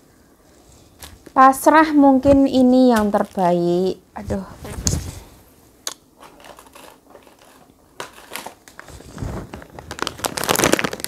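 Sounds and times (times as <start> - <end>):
plastic snack packet crinkling: 3.0 - 3.8, 6.2 - 11.0.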